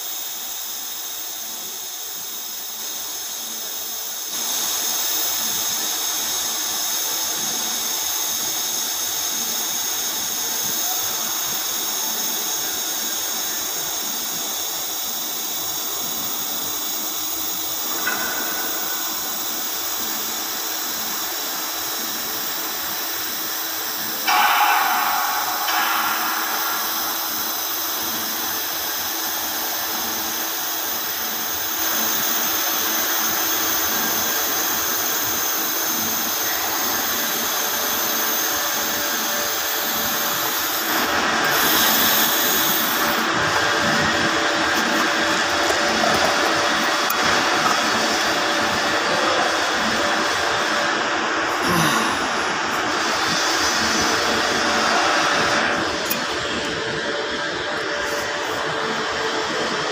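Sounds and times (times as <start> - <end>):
welding arc hissing: 14.4 - 48.7
burst of noise: 24.3 - 29.7.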